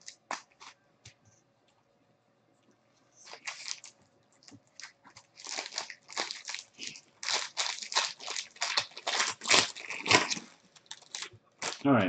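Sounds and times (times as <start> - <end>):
foil wrapper crinkling and tearing: 0.0 - 0.7, 3.2 - 12.0.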